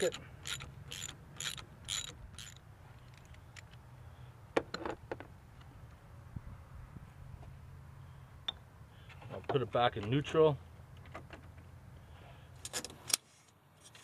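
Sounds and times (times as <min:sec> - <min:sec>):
ratchet strokes: 0:00.0 - 0:02.6.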